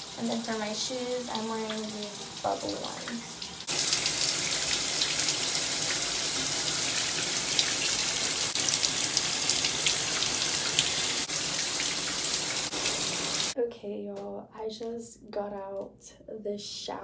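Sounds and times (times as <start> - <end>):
shower water spraying: 0.0 - 13.6.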